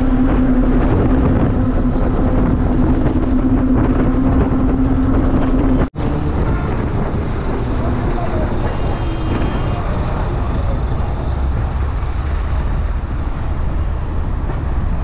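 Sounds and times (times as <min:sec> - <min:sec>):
bus engine droning: 0:00.0 - 0:15.0
road and wind noise: 0:00.0 - 0:15.0.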